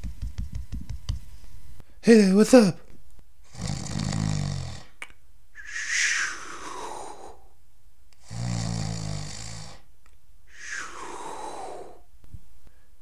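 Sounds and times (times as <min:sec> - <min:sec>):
man fake snoring: 0:03.5 - 0:05.0, 0:08.2 - 0:09.9.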